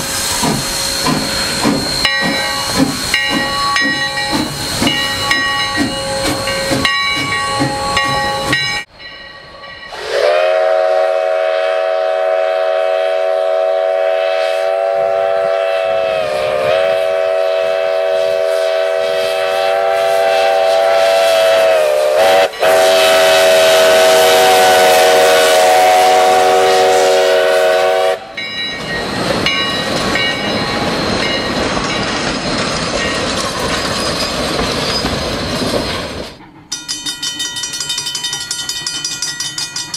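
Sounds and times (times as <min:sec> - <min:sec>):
hissing steam: 0:00.0 - 0:08.9, 0:09.8 - 0:32.9
train wheels clattering on rails: 0:00.0 - 0:10.0, 0:28.3 - 0:39.9
rhythmic ringing: 0:01.2 - 0:09.9
steam whistle blast: 0:09.9 - 0:28.4.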